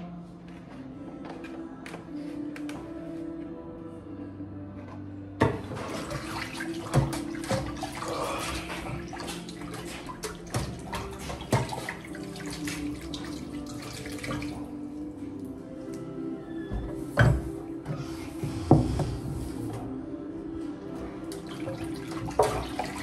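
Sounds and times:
tap water running into sink: 5.4 - 14.7, 21.3 - 23.0
hands washing in basin: 5.4 - 16.2, 20.7 - 23.0.

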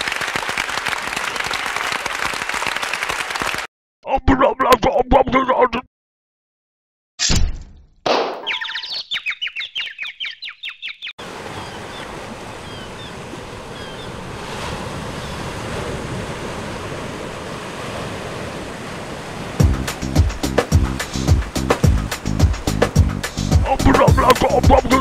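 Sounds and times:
cartoon twittering chirps: 8.4 - 11.1
waves and surf: 11.2 - 25.0.

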